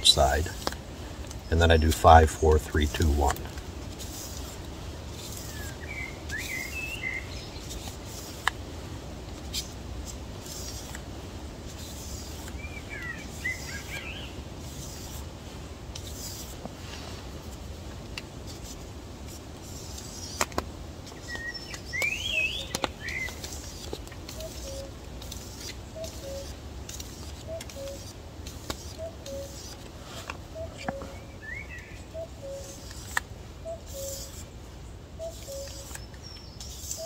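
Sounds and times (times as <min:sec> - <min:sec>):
birds chirping: 0:01.3 - 0:03.5, 0:05.3 - 0:07.8, 0:12.5 - 0:14.4, 0:21.2 - 0:24.9, 0:25.7 - 0:26.6, 0:28.9 - 0:37.0
knife rasping on sandpaper: 0:02.8 - 0:06.9, 0:07.6 - 0:08.5, 0:09.5 - 0:11.0, 0:11.6 - 0:15.3, 0:15.9 - 0:16.6, 0:18.5 - 0:20.5, 0:22.4 - 0:30.3, 0:32.4 - 0:33.2, 0:33.8 - 0:34.5, 0:35.2 - 0:37.0.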